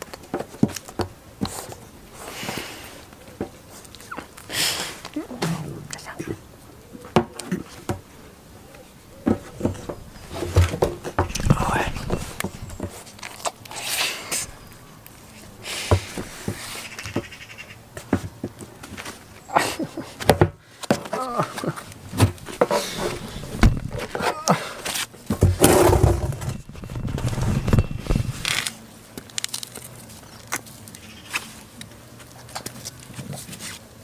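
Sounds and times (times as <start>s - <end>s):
knocks and rustles: 9.2s - 13.6s, 17.9s - 19.3s, 20.1s - 30.7s.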